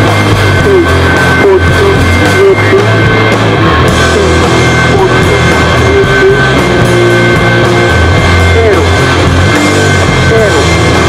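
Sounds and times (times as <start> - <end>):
distorted electric guitar: 0.0 - 11.0
drum kit playing: 0.0 - 11.0.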